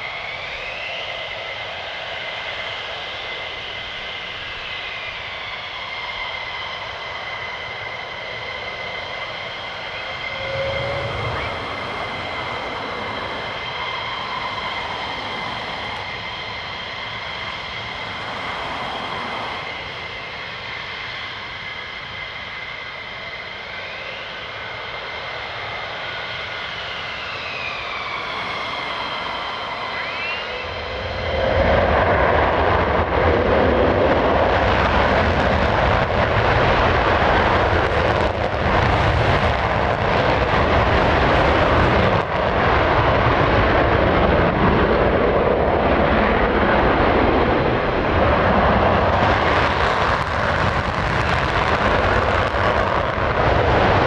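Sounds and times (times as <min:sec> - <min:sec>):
jet engines whining: 0:00.0 - 0:54.0
afterburner rumble: 0:08.6 - 0:21.5, 0:27.7 - 0:54.0.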